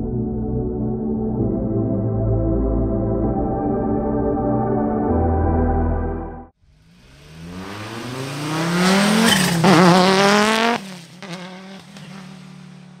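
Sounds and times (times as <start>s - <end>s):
race car engine accelerating: 6.6s - 13.0s.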